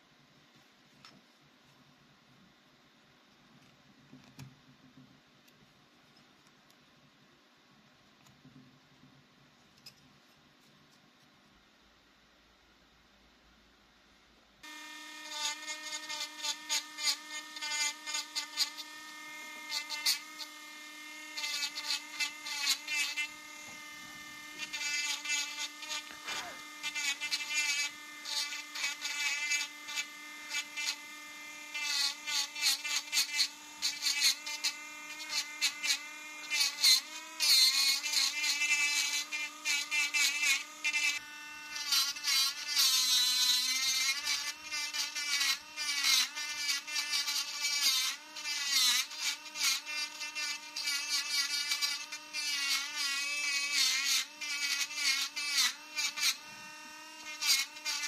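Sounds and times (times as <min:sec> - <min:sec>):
engraving pen whining: 0:14.6 - 0:58.0.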